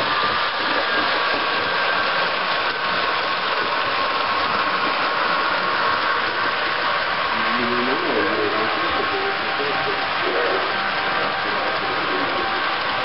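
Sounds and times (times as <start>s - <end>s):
model train running on track: 0.0s - 13.0s
diesel engine sound from small speaker: 3.6s - 13.0s.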